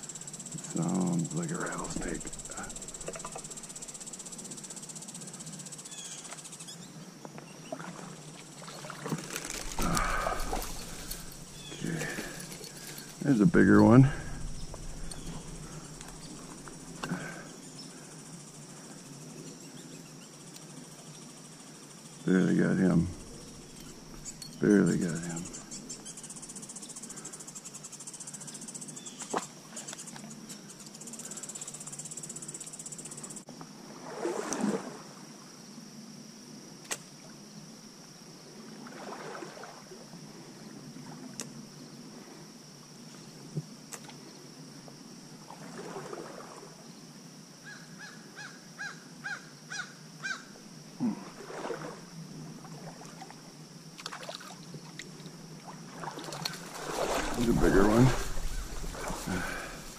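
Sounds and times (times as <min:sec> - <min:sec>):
insect trill: 0:00.0 - 0:59.9
rustles or splashes: 0:07.7 - 0:17.4, 0:33.8 - 0:35.2, 0:38.6 - 0:40.0, 0:45.4 - 0:46.8, 0:51.0 - 0:59.9
running water: 0:07.8 - 0:17.3, 0:54.0 - 0:59.9.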